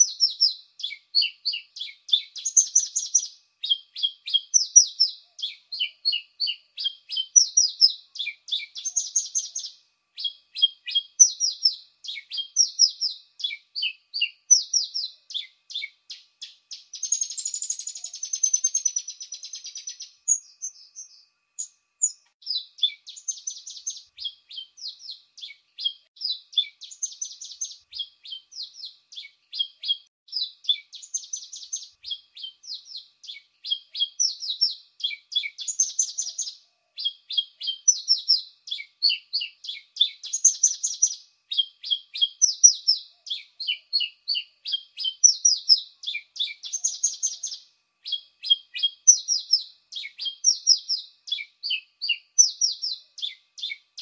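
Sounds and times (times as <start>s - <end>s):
bird singing high chirps and trills: 0.0s - 54.0s.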